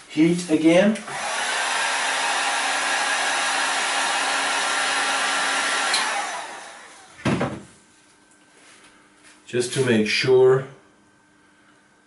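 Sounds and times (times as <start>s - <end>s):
heat gun blowing air: 1.0s - 7.2s
heat gun switch click: 5.9s - 6.2s.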